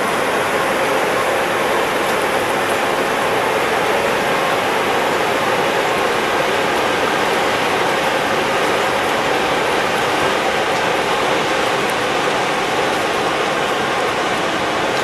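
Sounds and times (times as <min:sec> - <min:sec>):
flowing river water: 0:00.0 - 0:15.0.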